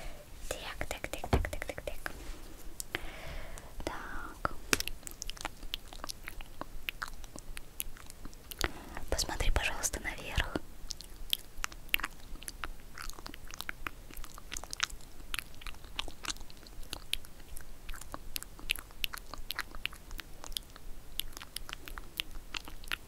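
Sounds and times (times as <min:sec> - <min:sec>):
wet lip and tongue clicks: 0:04.7 - 0:23.0.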